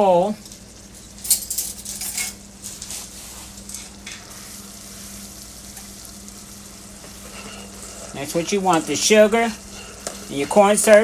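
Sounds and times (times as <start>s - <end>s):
syrup boiling and bubbling: 2.4s - 11.0s.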